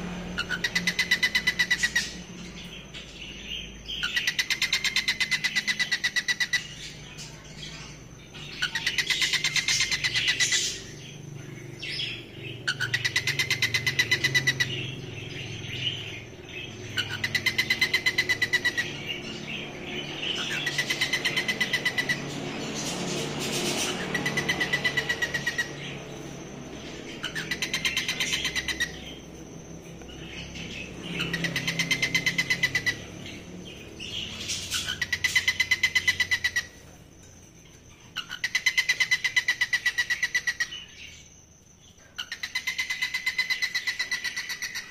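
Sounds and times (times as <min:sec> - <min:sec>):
cockatiel whistling song: 0:00.4 - 0:02.2, 0:23.8 - 0:36.8.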